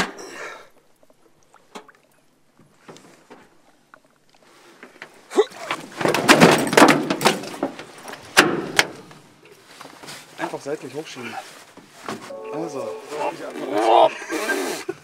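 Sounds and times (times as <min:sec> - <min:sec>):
fish thrashing on metal deck: 0:05.7 - 0:09.1.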